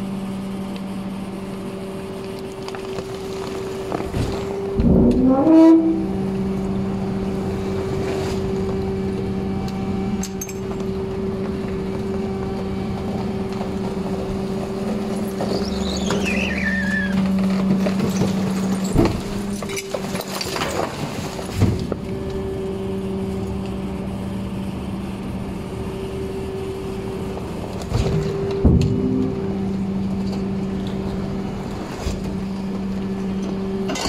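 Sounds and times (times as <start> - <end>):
garbage truck hydraulic hum: 1.4 - 34.0
falling squeal: 5.0 - 6.2, 15.3 - 17.4.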